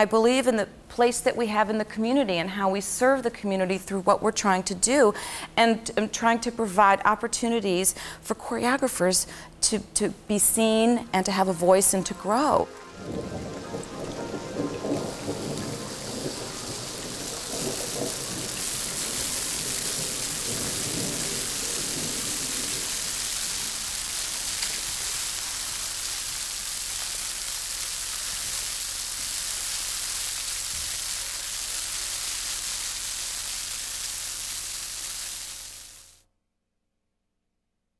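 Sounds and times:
low musical tones: 10.2s - 18.9s
dense rain hiss: 10.3s - 36.2s.

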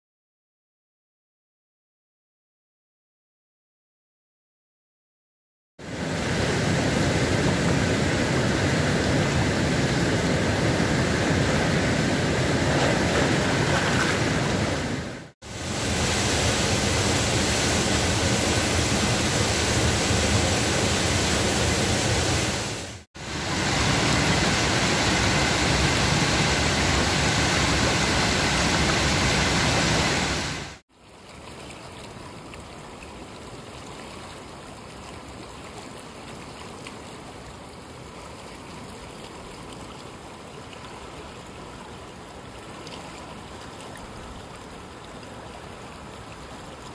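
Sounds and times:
whitewater rushing: 5.8s - 30.8s
floodwater flowing in a channel: 5.8s - 46.9s.

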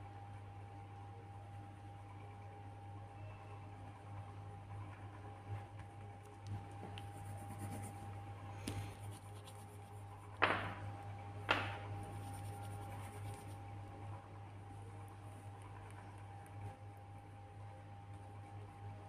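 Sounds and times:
steady low hum: 0.0s - 19.0s
pencil scratching on paper: 6.8s - 8.2s, 8.8s - 10.4s, 12.0s - 13.6s.

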